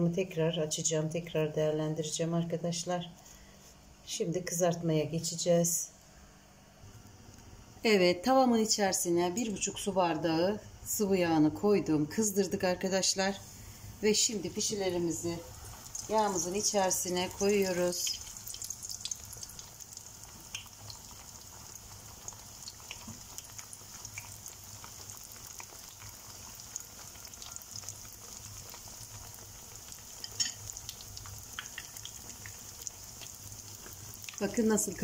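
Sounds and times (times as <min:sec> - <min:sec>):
dough frying in hot oil: 0:13.1 - 0:35.0.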